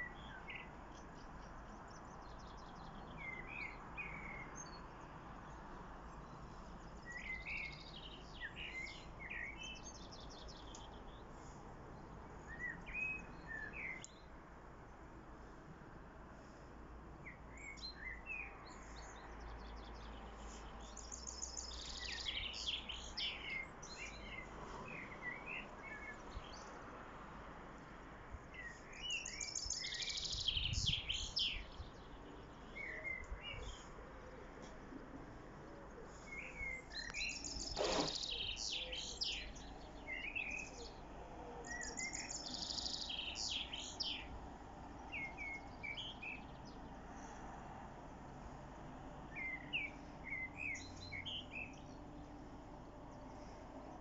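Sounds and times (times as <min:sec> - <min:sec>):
blackbird singing: 0:00.0 - 0:05.0, 0:06.8 - 0:11.2, 0:12.4 - 0:14.3, 0:17.2 - 0:20.1, 0:20.8 - 0:26.7, 0:28.5 - 0:33.9, 0:36.2 - 0:41.0, 0:41.6 - 0:44.3, 0:45.1 - 0:46.9, 0:49.3 - 0:52.0.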